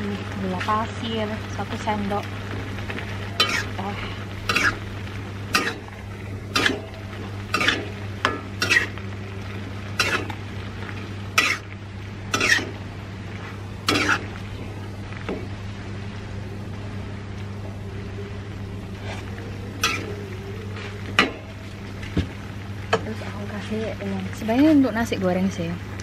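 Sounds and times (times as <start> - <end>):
steady low hum: 0.0 - 26.0
metal spatula scraping wok: 3.4 - 4.9, 5.5 - 5.9, 6.5 - 9.0, 10.0 - 10.4, 11.3 - 11.7, 12.3 - 12.8, 13.4 - 14.4, 19.0 - 20.2.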